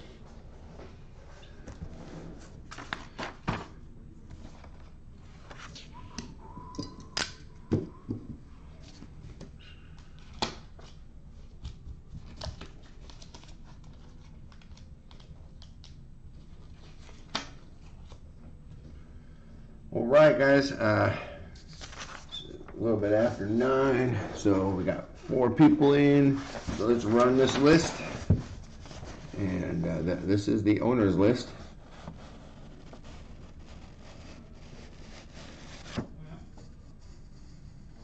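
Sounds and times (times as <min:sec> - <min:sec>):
hands handling paper and box: 0:21.6 - 0:22.4, 0:25.1 - 0:29.6.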